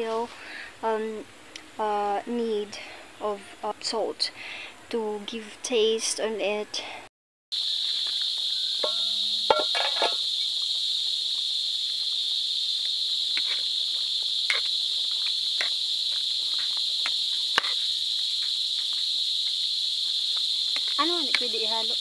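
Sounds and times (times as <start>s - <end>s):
high-pitched insect chorus: 7.6s - 22.0s
spatula stirring in metal pan: 13.3s - 17.9s.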